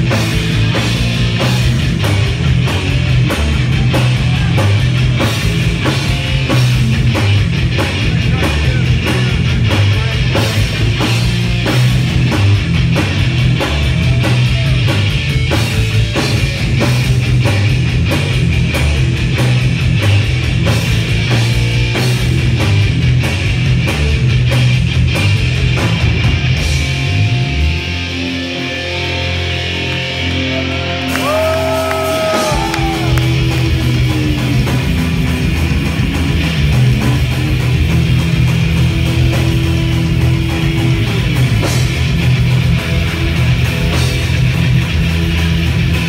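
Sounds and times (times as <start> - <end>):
fast drums: 0.0 - 27.7, 31.1 - 46.0
bending guitar notes: 0.0 - 46.0
thrash band playing live: 0.0 - 46.0.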